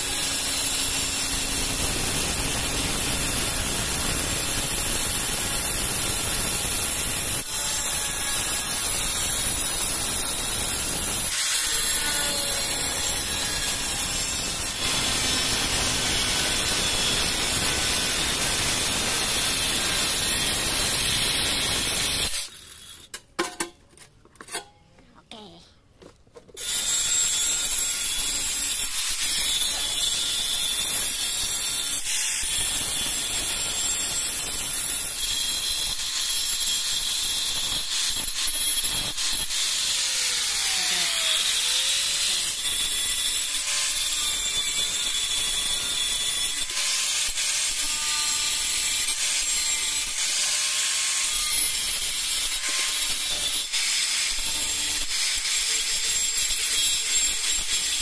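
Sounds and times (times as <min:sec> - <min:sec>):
angle grinder sanding tile edge: 0:26.6 - 0:58.0.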